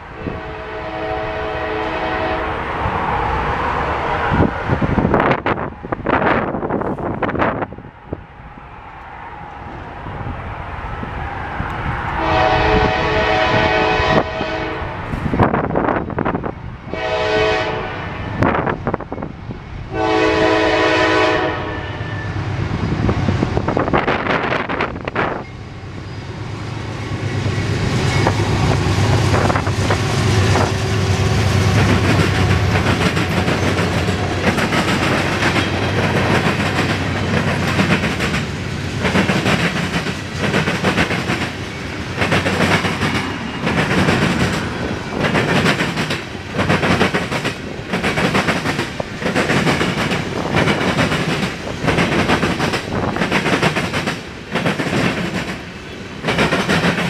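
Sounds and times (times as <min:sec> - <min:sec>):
locomotive horn blasts: 0:00.2 - 0:02.6, 0:12.2 - 0:15.0, 0:16.9 - 0:18.2, 0:19.9 - 0:22.2
freight cars rumbling: 0:21.6 - 0:57.0
wheels clattering on rails: 0:26.9 - 0:57.0.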